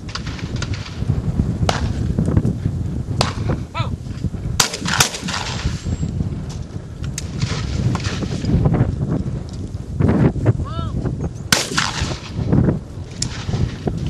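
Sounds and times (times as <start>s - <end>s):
person calling out: 3.7s - 4.0s, 10.6s - 11.0s
shotgun shots: 4.6s - 5.9s, 11.5s - 12.4s.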